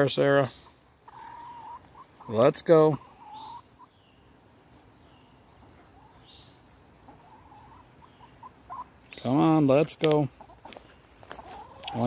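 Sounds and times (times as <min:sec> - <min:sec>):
hen clucking softly: 0:00.6 - 0:04.0, 0:05.7 - 0:06.3, 0:06.9 - 0:09.0, 0:11.4 - 0:12.0
high bird chirps: 0:03.2 - 0:04.3.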